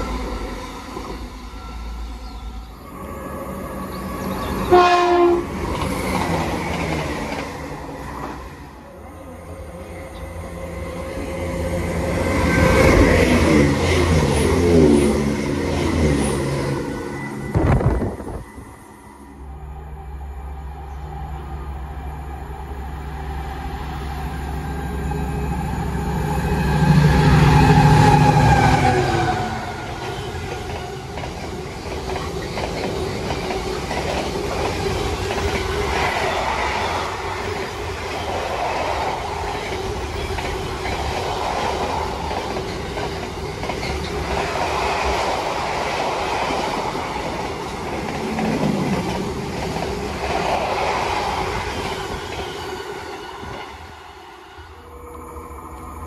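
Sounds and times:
diesel train engine: 0:00.0 - 0:56.0
train wheels clattering over rail joints: 0:39.0 - 0:44.6.

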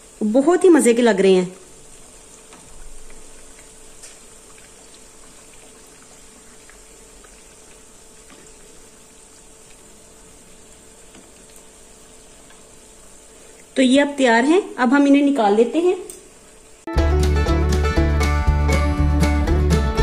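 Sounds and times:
food deep-frying in oil: 0:00.0 - 0:16.9
oil crackles: 0:01.8 - 0:13.8.

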